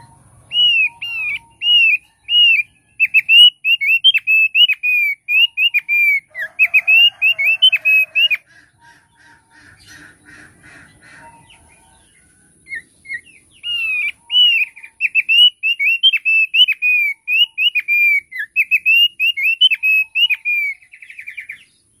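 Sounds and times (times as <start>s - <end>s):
bird singing whistled notes: 0.0s - 8.4s, 11.4s - 22.0s.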